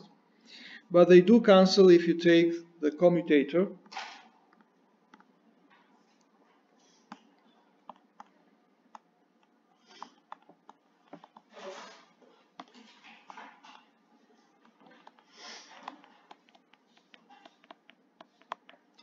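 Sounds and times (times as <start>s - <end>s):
stylus tapping on screen: 14.6s - 18.9s.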